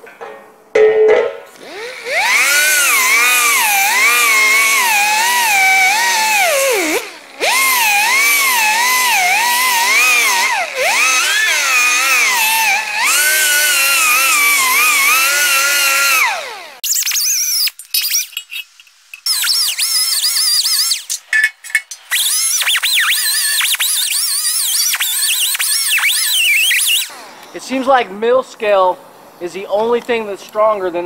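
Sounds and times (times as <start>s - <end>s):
die grinder whining on steel: 1.6s - 18.6s, 19.2s - 27.8s.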